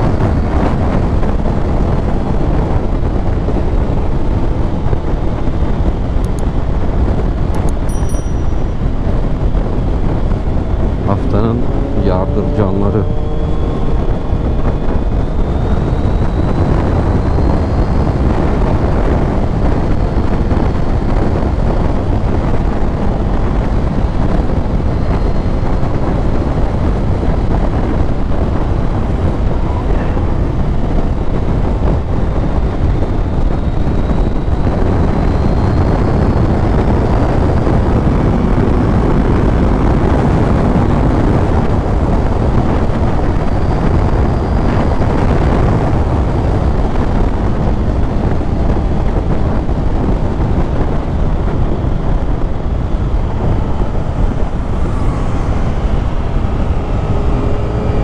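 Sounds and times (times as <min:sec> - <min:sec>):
wind buffeting microphone: 0:00.0 - 0:58.0
motorcycle engine running: 0:06.2 - 0:32.8, 0:50.1 - 0:58.0
faint high whine: 0:07.6 - 0:20.1, 0:51.1 - 0:58.0.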